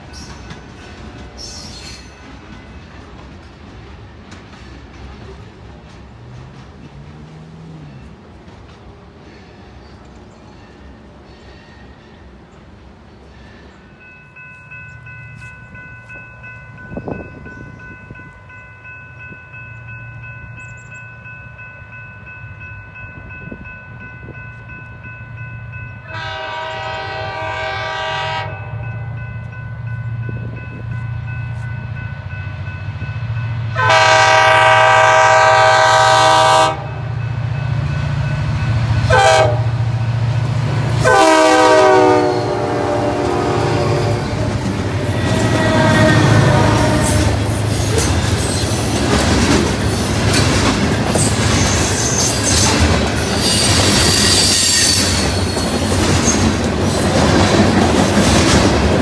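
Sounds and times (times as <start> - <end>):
locomotive horn blasts: 26.0 - 28.9, 33.7 - 37.0, 39.0 - 39.9, 41.0 - 47.5.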